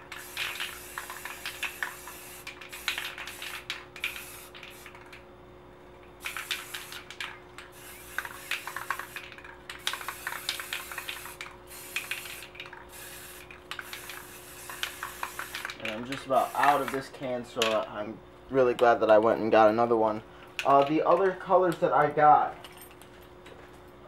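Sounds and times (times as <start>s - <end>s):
spray paint can hissing: 0.0s - 5.2s, 6.2s - 17.1s.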